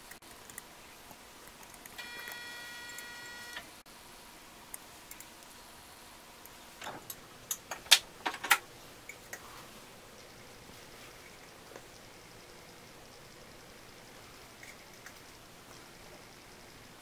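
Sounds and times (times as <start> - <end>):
steady high tone: 2.0 - 3.8.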